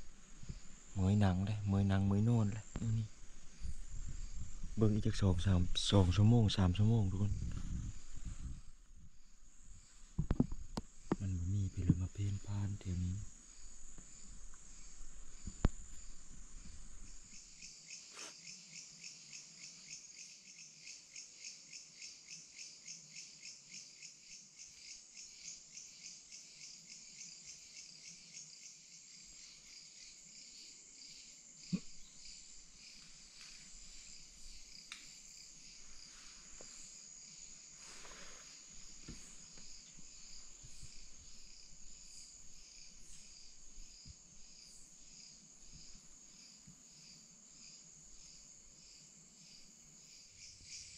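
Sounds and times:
crickets chirping: 0.0s - 50.9s.

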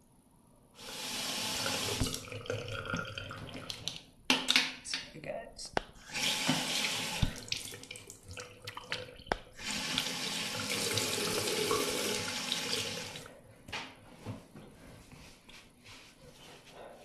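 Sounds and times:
tap running into a sink: 1.6s - 2.3s, 6.2s - 7.9s, 9.8s - 13.0s.

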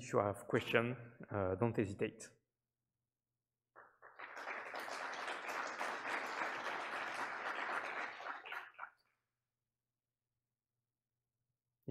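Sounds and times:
audience applauding: 3.8s - 9.0s.

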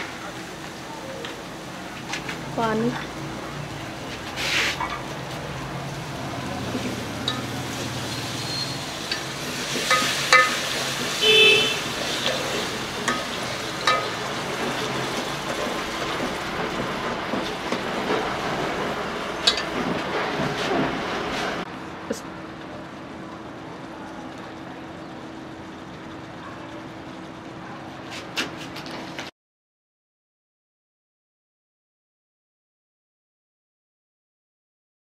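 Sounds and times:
steady sizzle: 0.0s - 29.2s
ladle clinking and scraping pot: 6.7s - 15.7s, 19.4s - 19.9s.

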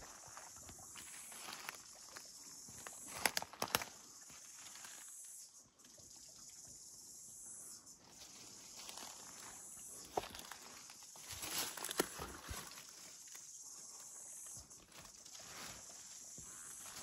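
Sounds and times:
faint high bush hiss: 0.0s - 5.7s, 6.8s - 17.0s
footsteps on leaf litter: 1.0s - 2.2s, 8.2s - 13.4s
twig snaps: 3.2s - 3.9s, 11.7s - 12.3s.

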